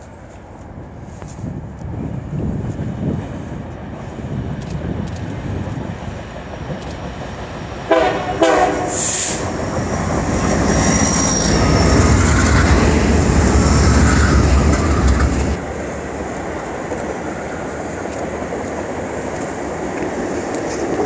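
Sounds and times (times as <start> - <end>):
locomotive engine rumble: 0.0 - 21.0
train wheel noise: 0.0 - 21.0
locomotive horn blasts: 7.9 - 9.5
brief hiss: 8.9 - 9.4.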